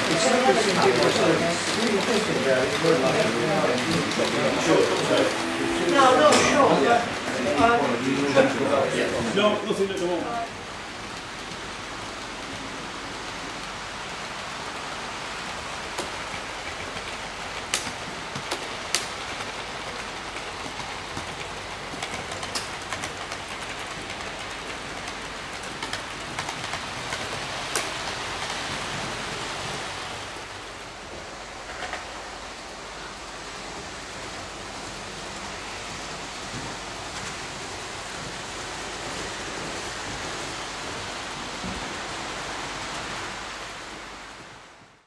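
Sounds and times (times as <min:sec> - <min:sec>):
sharp track clicks: 0:01.0 - 0:06.5, 0:15.9 - 0:28.6.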